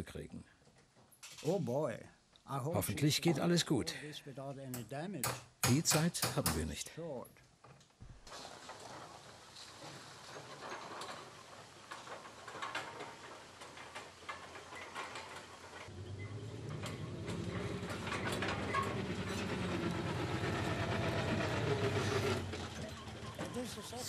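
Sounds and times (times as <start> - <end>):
trailer clattering and rattling: 8.3 - 24.0
truck engine hum: 15.8 - 24.0.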